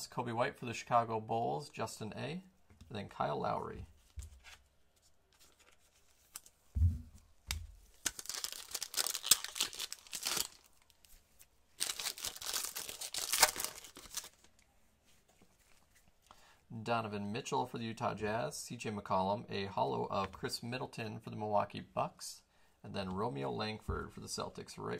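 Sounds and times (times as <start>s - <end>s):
wrapper tearing and crinkling: 7.9s - 11.1s, 11.8s - 14.5s.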